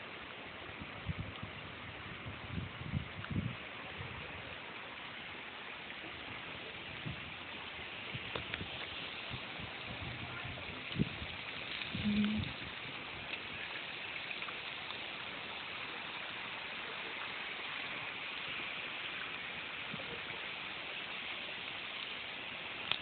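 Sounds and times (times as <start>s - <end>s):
watery hiss: 4.2s - 23.0s
faint ticks: 8.3s - 9.0s, 11.6s - 13.5s, 22.8s - 23.0s.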